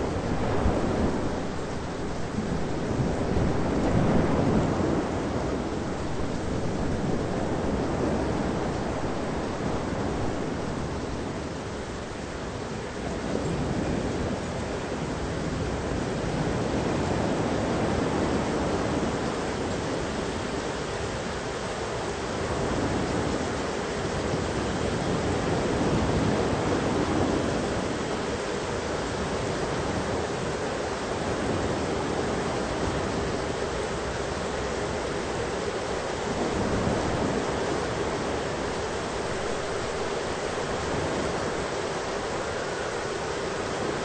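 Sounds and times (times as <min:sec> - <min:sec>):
thunderstorm rushing noise: 0:00.0 - 0:20.0, 0:31.2 - 0:44.0.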